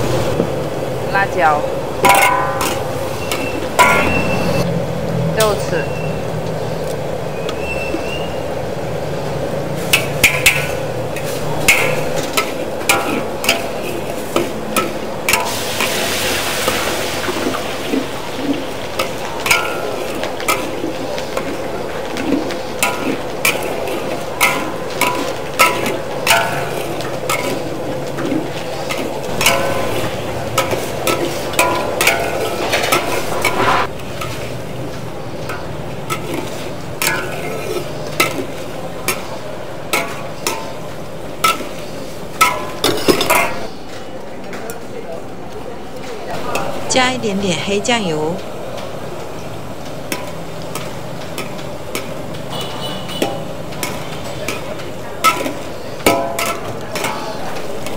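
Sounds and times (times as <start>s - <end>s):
sauce sizzling in a wok: 0.0s - 4.7s, 5.5s - 43.9s, 46.4s - 57.9s
metal spatula scraping pan: 2.0s - 4.7s, 9.8s - 43.8s.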